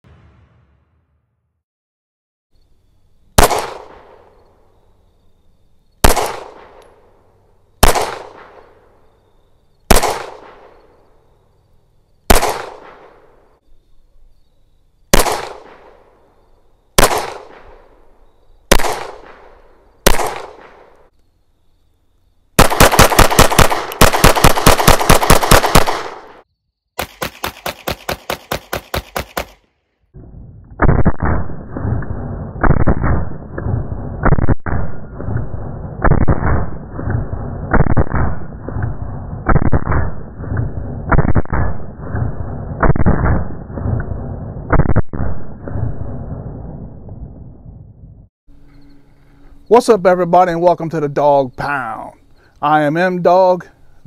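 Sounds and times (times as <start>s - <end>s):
rapid string of gunshots: 3.4s - 4.2s, 6.0s - 6.8s, 7.8s - 8.6s, 9.9s - 10.8s, 12.3s - 13.2s, 15.1s - 16.0s, 17.0s - 17.8s, 18.7s - 20.9s, 22.6s - 26.4s, 27.0s - 29.7s, 30.8s - 44.0s, 44.6s - 46.3s
handgun shots echoing: 7.8s - 8.7s, 9.9s - 10.8s, 12.3s - 13.2s, 15.1s - 16.0s, 17.0s - 17.8s, 18.7s - 19.5s, 20.1s - 21.0s, 22.6s - 26.4s.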